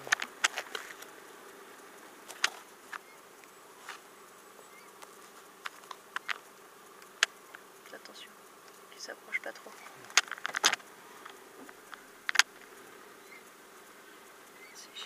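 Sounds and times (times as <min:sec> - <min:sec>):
faint insect buzzing: 0:00.0 - 0:15.0
sharp clicks: 0:09.6 - 0:12.7.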